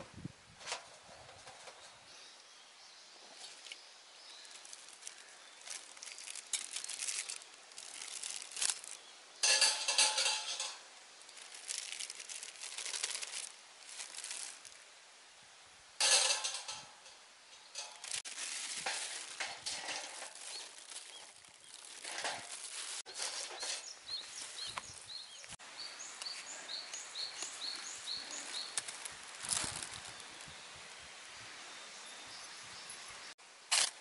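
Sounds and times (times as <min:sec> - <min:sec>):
rustling and crinkling handling noise: 0:03.2 - 0:14.9, 0:16.0 - 0:25.6, 0:27.4 - 0:30.6.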